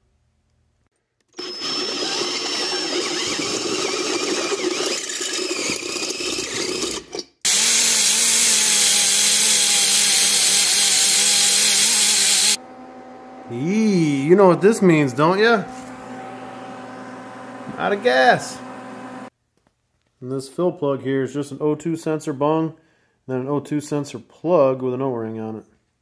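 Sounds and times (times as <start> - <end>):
die grinder running at high speed: 1.4 - 6.8, 7.5 - 19.3
drill cutting through steel: 1.4 - 12.6.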